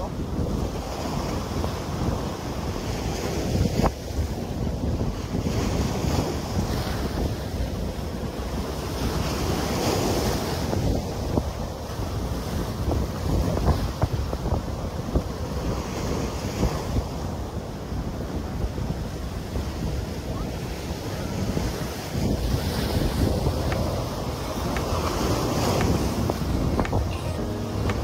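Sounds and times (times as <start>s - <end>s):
wind buffeting microphone: 0.0s - 28.0s
surf breaking over boulders: 21.2s - 28.0s.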